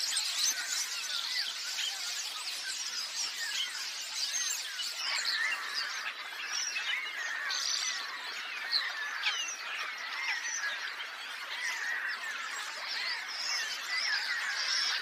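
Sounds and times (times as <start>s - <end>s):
flock of starlings chattering: 0.0s - 15.0s.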